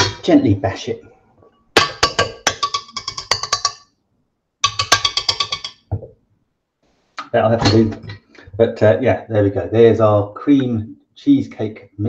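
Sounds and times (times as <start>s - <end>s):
whisk tapping metal bowl: 1.8s - 3.8s, 4.6s - 5.9s.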